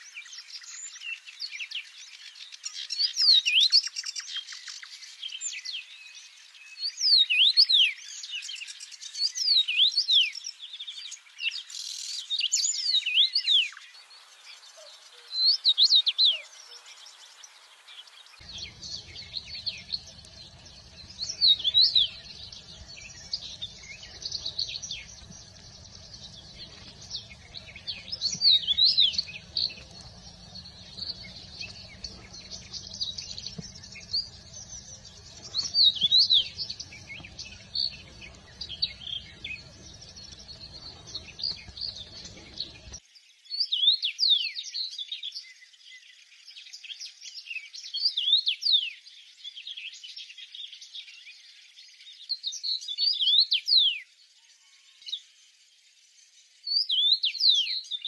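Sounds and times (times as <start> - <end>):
faint bird chirping: 0.0 - 58.0
loud whistled bird song: 0.0 - 58.0
low background rumble: 18.4 - 43.0.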